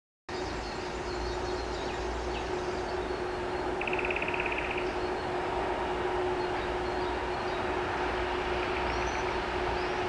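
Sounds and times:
bird chirps: 0.3 - 5.3
train rumble and hum: 0.3 - 10.0
bird trilling: 3.8 - 5.1.

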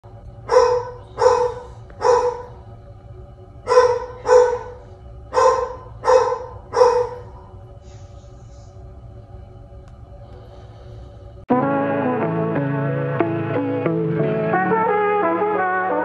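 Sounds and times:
dog barking: 0.5 - 2.6, 3.7 - 7.4.

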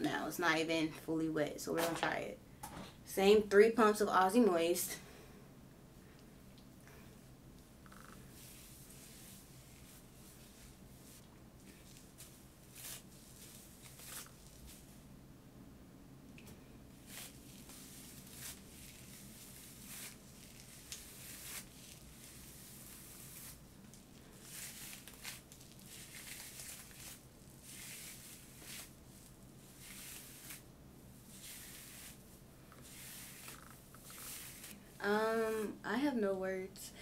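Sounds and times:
brush strokes through wet hair: 7.9 - 15.0, 16.9 - 35.7.

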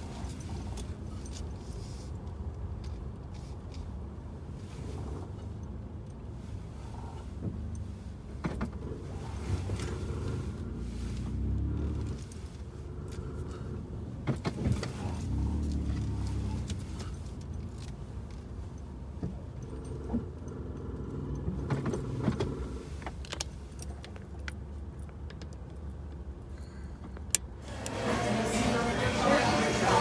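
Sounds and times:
keys jangling: 14.4 - 25.9
handling clicks and knocks: 21.3 - 26.3.

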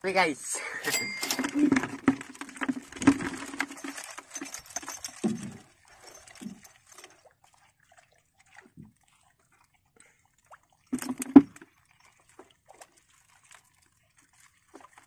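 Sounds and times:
crab trap clattering: 0.8 - 6.9.

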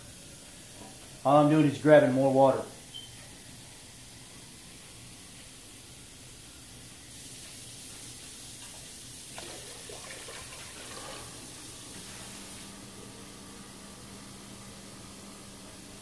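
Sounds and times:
water pouring into pot: 9.2 - 11.9.

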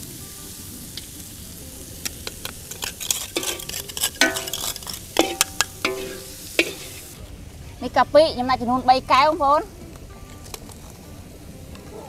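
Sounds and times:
steady hiss: 0.0 - 9.3
utensil knocking on steel pot: 2.7 - 7.2.

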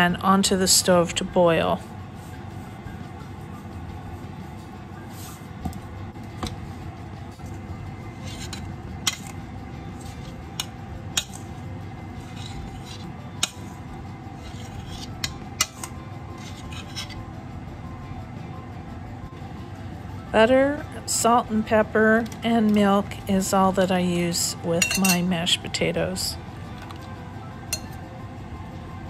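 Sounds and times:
metal spoon clinking on colander: 24.7 - 25.3
spoon clinking on glass bowl: 24.8 - 25.3.

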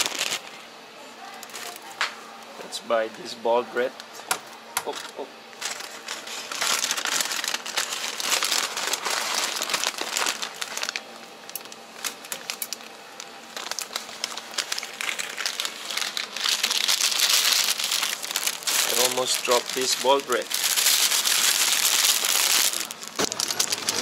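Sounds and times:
paper bag crinkling: 0.0 - 0.4, 5.6 - 24.0.

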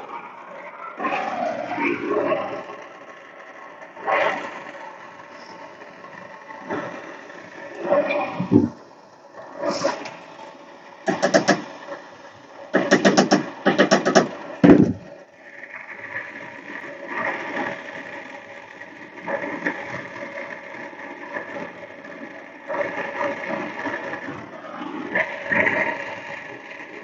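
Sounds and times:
rapid rattling bursts: 0.0 - 27.0
torch flame hissing: 4.0 - 21.8.

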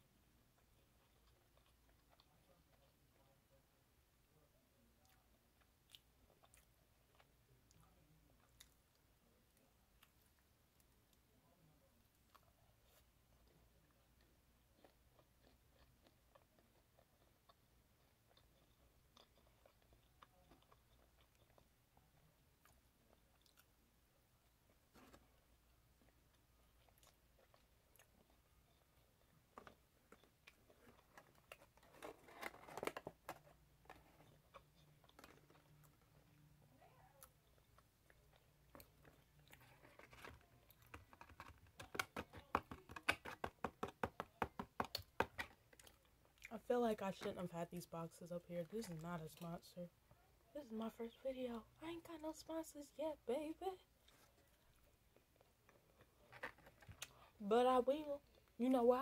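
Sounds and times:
person chewing food: 0.5 - 3.4, 5.0 - 9.0, 12.2 - 46.5, 53.9 - 57.4.

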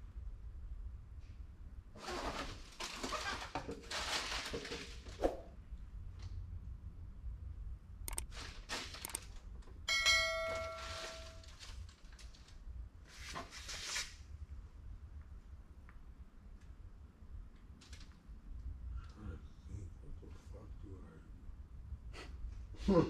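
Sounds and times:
handling rustling and scraping: 2.0 - 5.6, 10.2 - 14.2
clear ringing ding: 9.9 - 11.4.

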